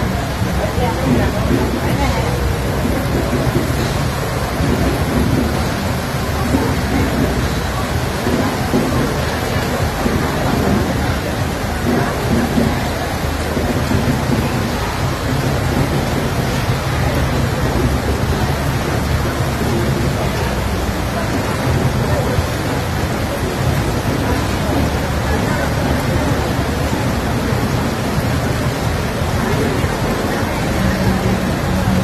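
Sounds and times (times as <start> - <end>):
heavy rain pouring: 0.0 - 32.0.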